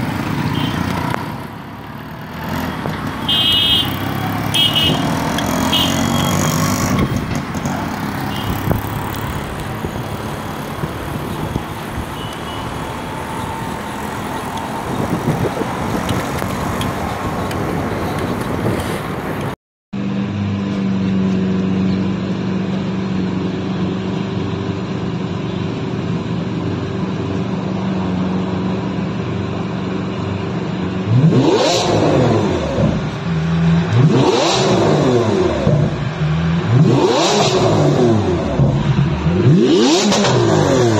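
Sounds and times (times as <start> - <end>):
car engine idling and revving: 0.0 - 40.9.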